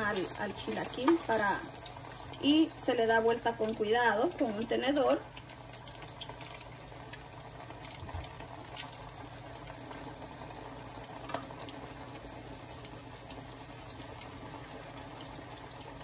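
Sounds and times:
food sizzling in hot oil: 0.0s - 16.0s.

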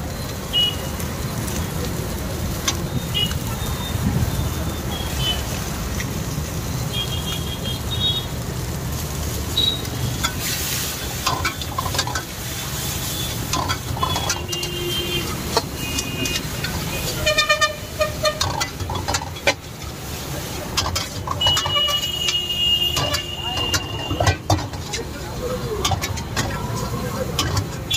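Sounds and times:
vehicle horns tooting: 0.4s - 1.0s, 2.9s - 5.6s, 6.8s - 8.4s, 9.5s - 10.3s, 12.7s - 18.7s, 21.2s - 24.7s
metal spatula scraping a wok: 10.1s - 27.9s.

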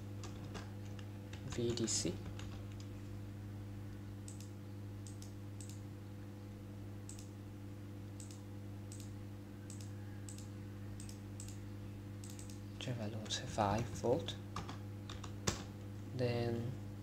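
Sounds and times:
low electrical hum: 0.0s - 17.0s
computer mouse clicking: 4.3s - 5.8s, 7.1s - 7.3s, 8.2s - 9.1s, 9.7s - 11.6s, 12.2s - 12.6s.

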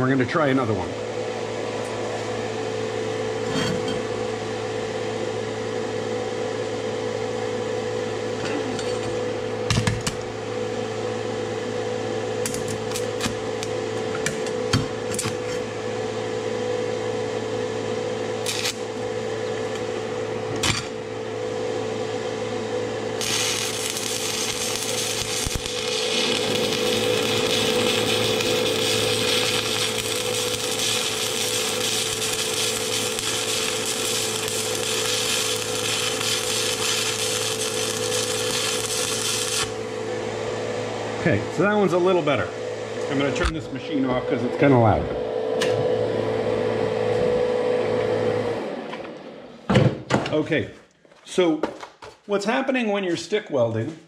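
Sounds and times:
welder humming: 0.0s - 49.7s
welding arc crackling hiss: 12.4s - 15.6s, 18.4s - 19.9s, 23.0s - 40.0s.

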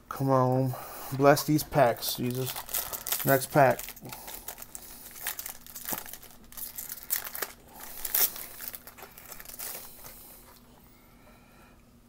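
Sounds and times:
foil wrapper crinkling and tearing: 2.0s - 10.6s.

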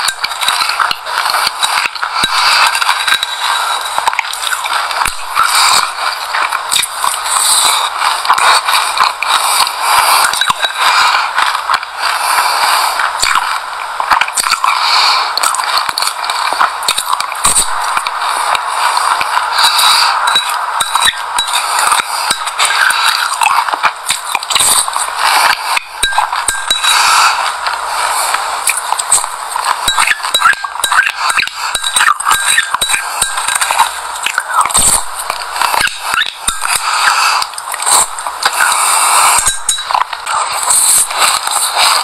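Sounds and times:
crunchy chewing: 0.0s - 42.0s
spoon clinking against glass bowl: 39.4s - 40.1s.

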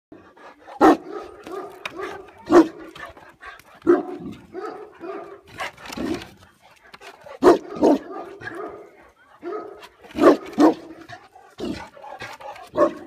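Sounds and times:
dog barking deeply: 0.8s - 2.9s, 7.4s - 13.0s.

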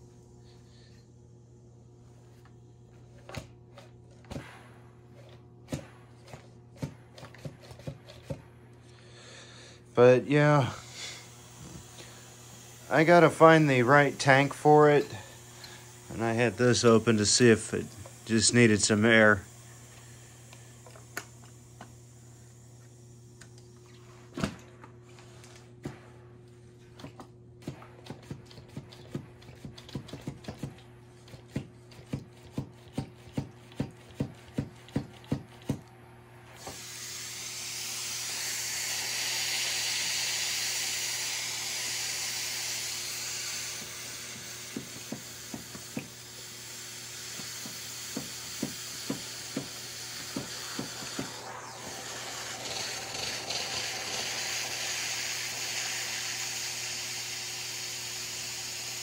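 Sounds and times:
steam hissing: 9.2s - 23.4s, 36.4s - 59.0s
steam mop pump clicking: 43.5s - 59.0s.

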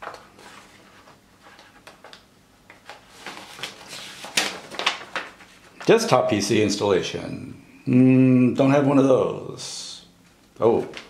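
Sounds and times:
paper rustling and crackling: 0.0s - 6.0s.

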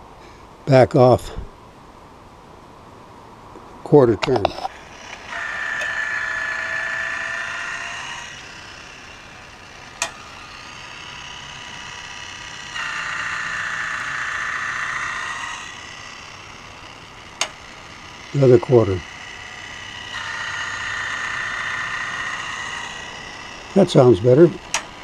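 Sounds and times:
grinding wheel grinding blade: 4.4s - 25.0s
motor humming: 4.4s - 25.0s
sharp click: 10.0s - 10.2s, 24.7s - 24.9s.

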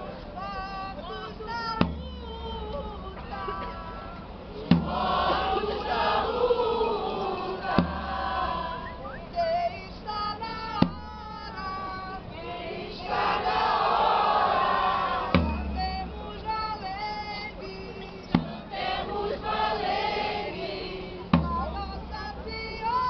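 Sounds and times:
group singing and chanting: 0.0s - 23.0s
loud deep thump: 4.7s - 5.5s, 7.6s - 8.5s, 15.4s - 16.5s, 18.3s - 18.7s, 21.3s - 22.6s.

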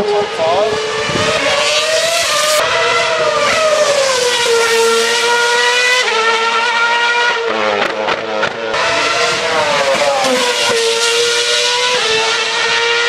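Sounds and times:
racing car engine at high revs: 0.0s - 13.0s.

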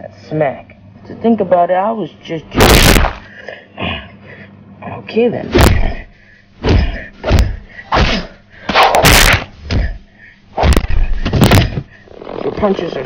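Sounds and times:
harsh crash: 2.6s - 3.3s
heavy punch impacts: 2.6s - 3.3s, 5.5s - 10.0s, 10.6s - 11.9s.

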